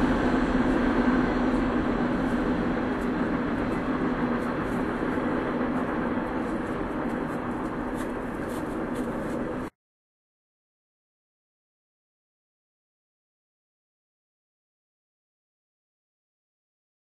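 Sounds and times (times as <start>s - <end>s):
model trains humming and rumbling: 0.0s - 9.7s.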